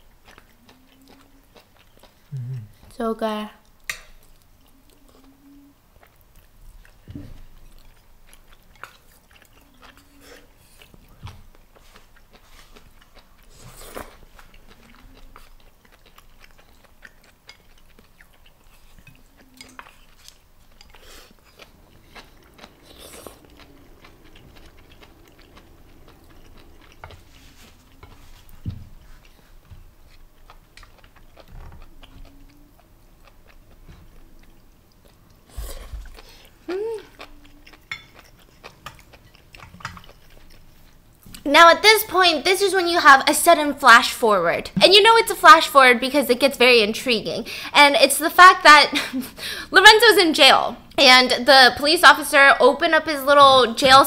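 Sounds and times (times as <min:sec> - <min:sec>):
chewing and mouth sounds: 0:00.0 - 0:03.0, 0:03.6 - 0:42.2.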